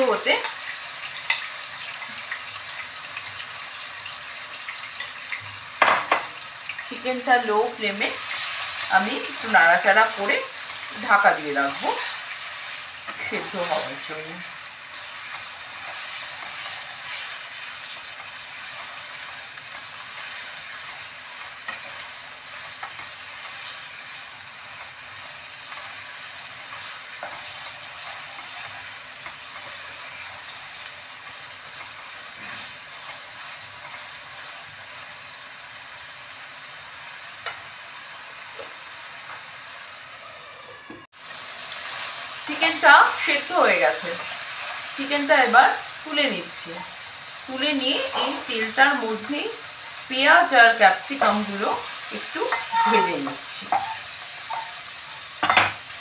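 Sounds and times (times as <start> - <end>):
chicken sizzling in oil: 0.0 - 56.0
wooden spatula scraping: 15.2 - 24.2, 26.7 - 33.2, 52.2 - 55.2.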